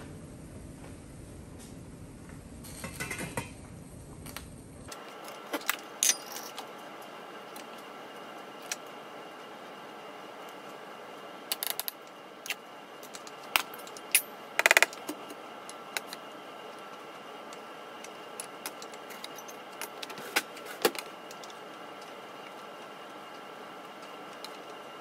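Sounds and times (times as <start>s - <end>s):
utensils clinking on cookware: 2.6s - 3.6s, 6.0s - 6.6s.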